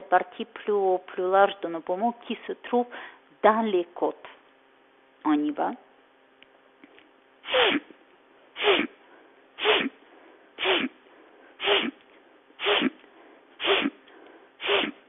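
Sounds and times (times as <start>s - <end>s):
woman's sharp nasal breaths: 7.4s - 7.9s, 8.6s - 12.0s, 12.6s - 15.0s.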